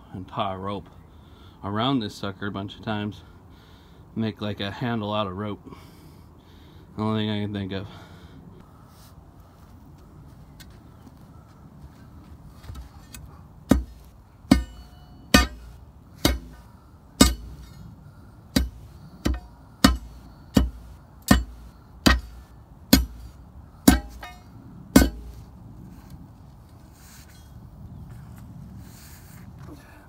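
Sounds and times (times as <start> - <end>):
pry bar striking concrete lid: 13.7 - 17.8, 18.5 - 25.4
metallic ring: 13.8 - 18.0, 23.9 - 25.4.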